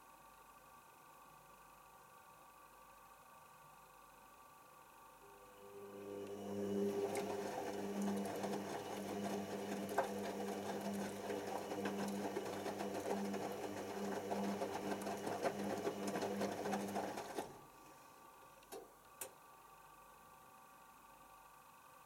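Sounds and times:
washing machine motor hum: 5.2s - 18.1s
laundry sloshing and slapping: 6.7s - 17.6s.

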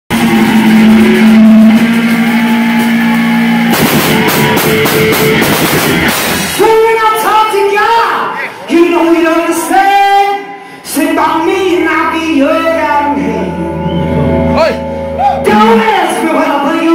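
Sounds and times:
electric guitar: 0.1s - 6.6s, 12.1s - 16.9s
drums and cymbals crashing: 0.1s - 6.9s.

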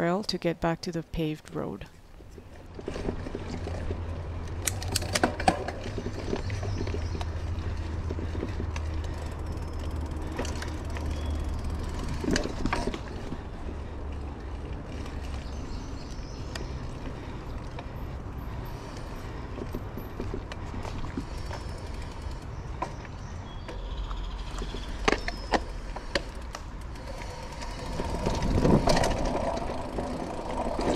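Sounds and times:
bike rattling over bumps: 2.3s - 30.9s
bike tyres rumbling on dirt: 2.7s - 30.9s
wind on microphone: 28.0s - 29.9s.

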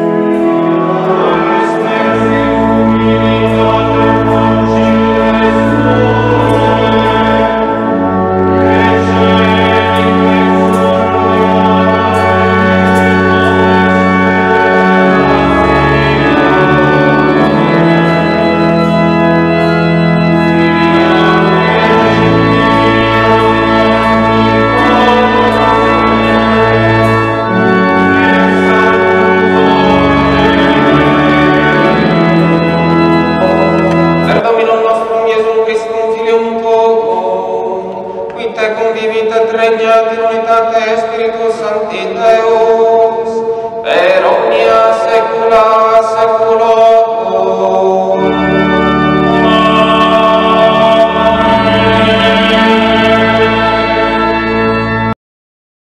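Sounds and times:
church organ chords: 0.0s - 55.2s.

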